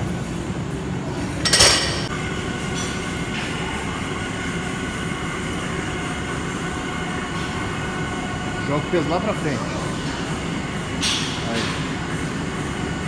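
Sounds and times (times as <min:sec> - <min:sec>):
gym background hum: 0:00.0 - 0:13.0.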